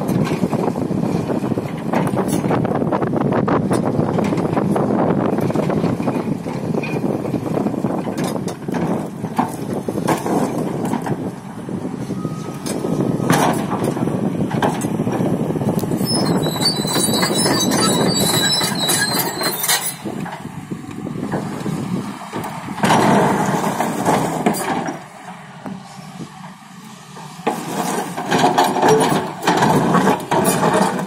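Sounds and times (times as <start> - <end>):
excavator diesel engine running: 0.0 - 31.0
bucket scraping road surface: 8.1 - 11.2, 15.8 - 20.4, 21.4 - 25.1, 27.2 - 31.0
metallic squeal of tracks: 12.0 - 13.4, 15.9 - 20.1.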